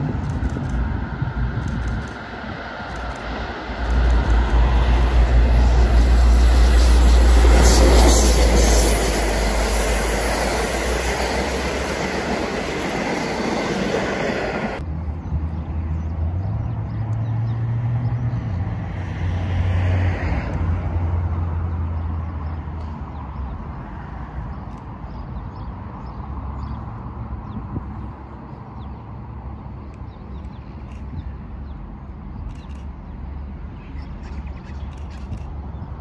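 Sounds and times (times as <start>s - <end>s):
locomotive engine rumble: 0.0s - 14.8s
wheels on rail: 0.0s - 14.8s
distant diesel railcar drone: 0.0s - 36.0s.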